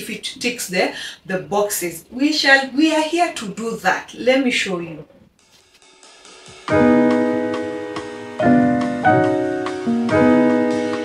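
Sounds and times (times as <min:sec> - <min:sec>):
piano chords ringing: 0:06.7 - 0:11.0.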